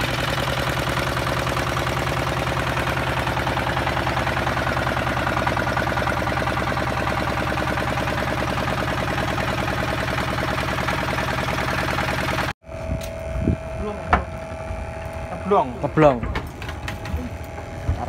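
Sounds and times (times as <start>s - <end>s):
boat engine chugging: 0.0s - 12.5s.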